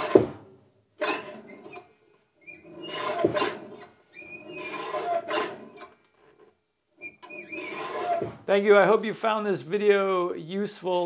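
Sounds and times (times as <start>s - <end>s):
high squeaks: 1.0s - 6.0s, 7.0s - 8.4s
paper cutter blade shearing paper: 2.6s - 6.0s, 7.2s - 8.5s.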